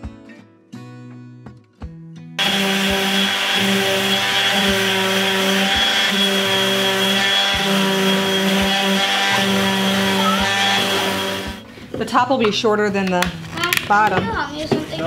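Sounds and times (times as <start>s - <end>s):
orbital sander on wood: 2.4s - 11.6s.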